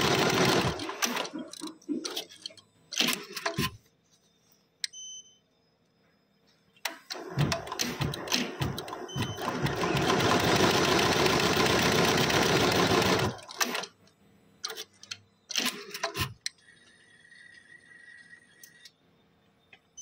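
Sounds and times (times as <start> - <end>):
machine clicks and clunks: 0.7 - 3.8, 6.8 - 10.1, 14.6 - 16.6.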